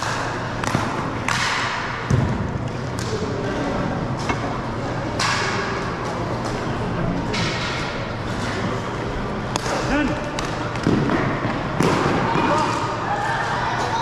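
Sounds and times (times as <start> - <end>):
hockey sticks clacking: 0.0 - 2.3, 5.2 - 6.7, 9.5 - 14.0.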